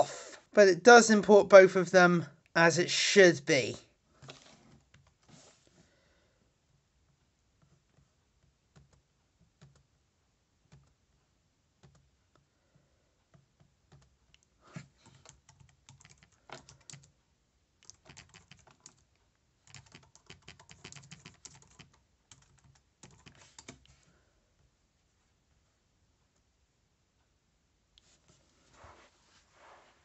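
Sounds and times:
typing on laptop keyboard: 0:07.1 - 0:10.0, 0:10.6 - 0:11.2, 0:11.8 - 0:12.5, 0:13.2 - 0:17.2, 0:17.8 - 0:24.1.

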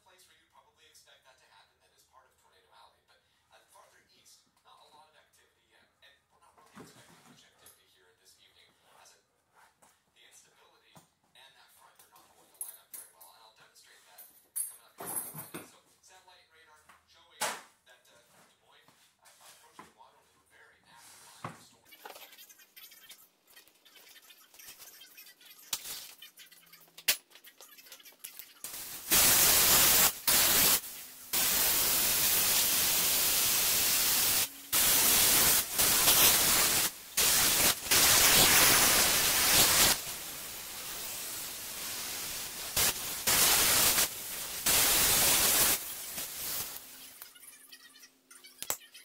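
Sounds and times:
harsh static hiss: 0:28.4 - 0:47.3.

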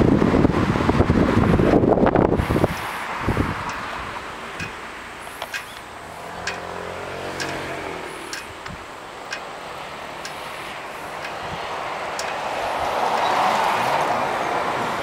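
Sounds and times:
engine passing: 0:00.0 - 0:15.0
engine roar: 0:00.0 - 0:15.0
outdoor noise: 0:00.0 - 0:15.0.

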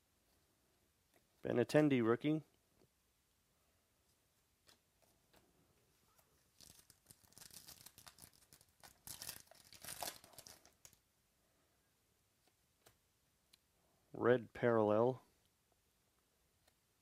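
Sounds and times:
wrapper tearing and crinkling: 0:06.5 - 0:11.0.

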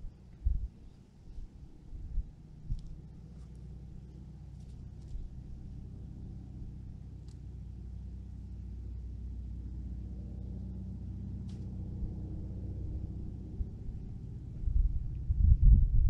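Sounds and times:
low engine rumble: 0:00.0 - 0:16.0
faint light ticks: 0:07.2 - 0:07.4.

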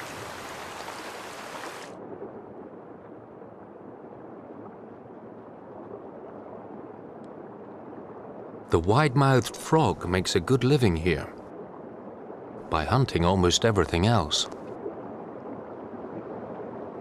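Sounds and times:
stream water rushing: 0:00.0 - 0:02.0
muffled stream underwater: 0:00.0 - 0:17.0.

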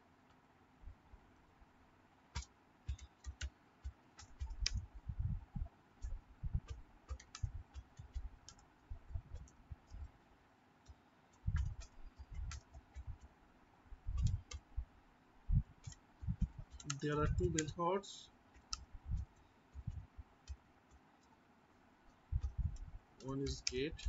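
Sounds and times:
keyboard typing clicks: 0:02.3 - 0:05.0, 0:06.0 - 0:10.1, 0:10.8 - 0:13.3, 0:14.1 - 0:14.7, 0:15.8 - 0:17.8, 0:22.4 - 0:24.0.

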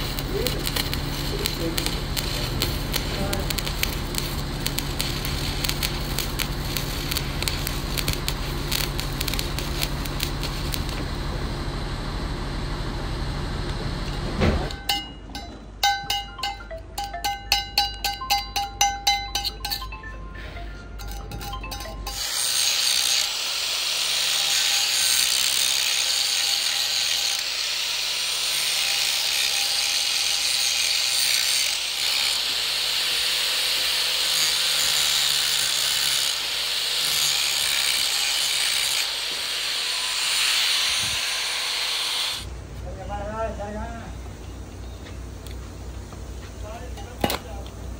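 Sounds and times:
angle grinder grinding steel: 0:00.0 - 0:11.0, 0:21.0 - 0:42.5
arc welding crackle: 0:00.0 - 0:12.4, 0:22.1 - 0:44.0
low hum: 0:00.0 - 0:22.2
ringing metallic taps: 0:14.8 - 0:20.1.

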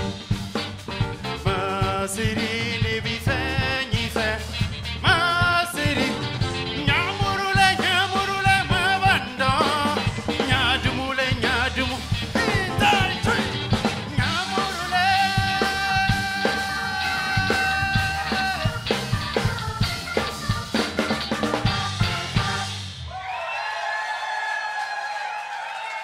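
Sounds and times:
live band playing: 0:00.0 - 0:23.1
person singing: 0:01.4 - 0:20.3.

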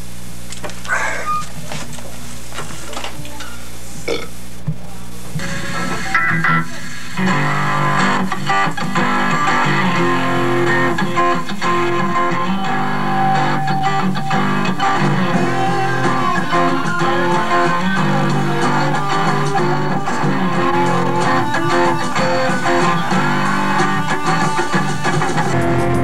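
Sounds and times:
electric guitars: 0:05.3 - 0:26.0
bass guitar notes: 0:07.2 - 0:26.0.

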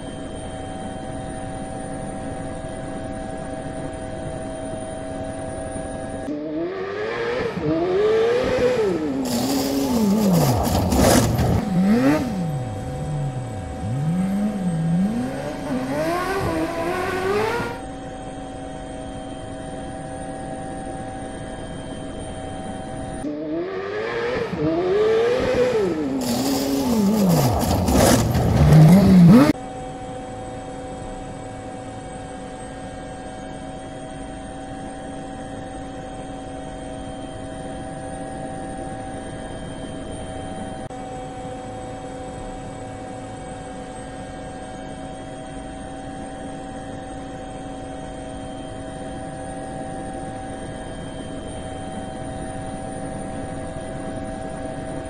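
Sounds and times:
drone motors whining: 0:00.0 - 0:29.6
engine revving: 0:06.3 - 0:17.9, 0:23.2 - 0:29.6.

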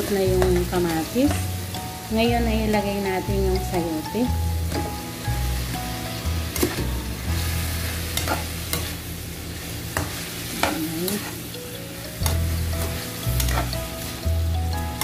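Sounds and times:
food sizzling: 0:00.0 - 0:15.0
metal spatula scraping a wok: 0:06.5 - 0:11.4, 0:12.2 - 0:14.0.

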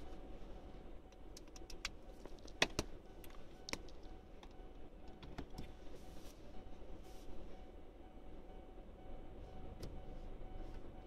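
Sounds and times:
sharp clicks: 0:01.1 - 0:05.7.

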